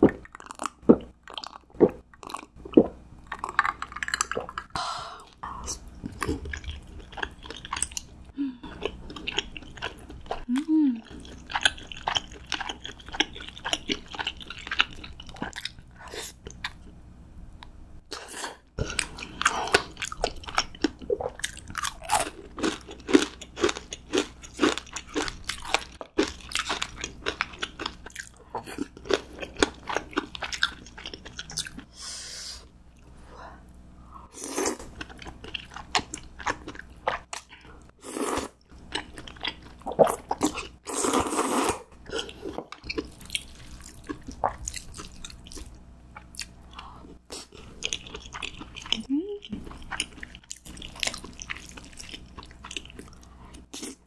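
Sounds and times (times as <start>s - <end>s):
crunchy food chewing: 18.8s - 31.9s, 38.4s - 54.0s.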